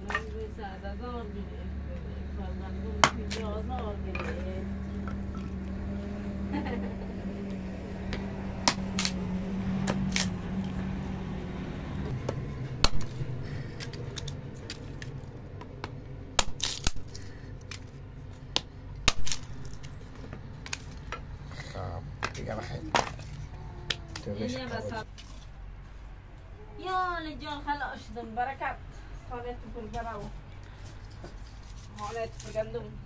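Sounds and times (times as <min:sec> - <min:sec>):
steady low hum: 0:00.0 - 0:26.6.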